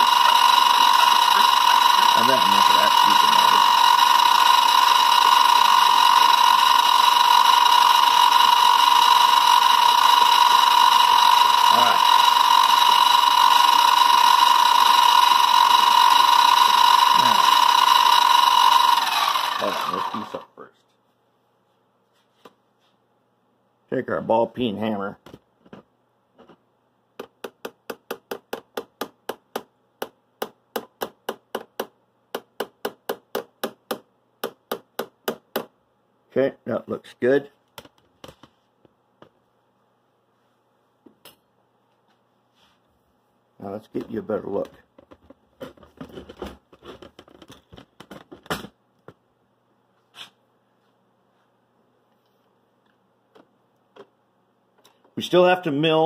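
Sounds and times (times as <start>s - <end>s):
hammer tapping on metal vise: 27.2s - 35.7s.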